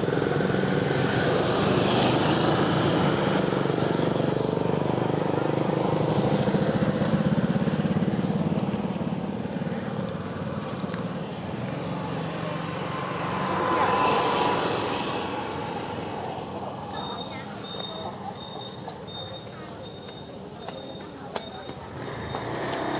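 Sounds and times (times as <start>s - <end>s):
motorcycle engine idling: 3.6s - 11.9s.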